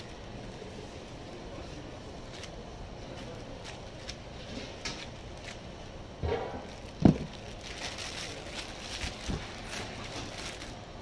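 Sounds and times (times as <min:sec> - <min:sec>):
plastic bag crinkling: 0:01.5 - 0:11.0
pineapple thumping: 0:06.2 - 0:10.6.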